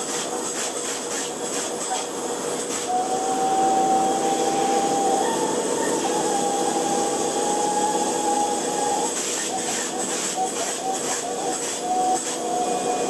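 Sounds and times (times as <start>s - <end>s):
machine hiss: 0.0s - 13.0s
thin high whine: 2.8s - 13.0s.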